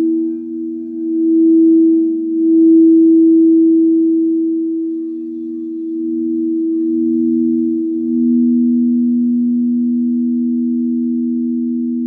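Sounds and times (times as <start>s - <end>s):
singing bowls ringing: 0.0s - 12.0s.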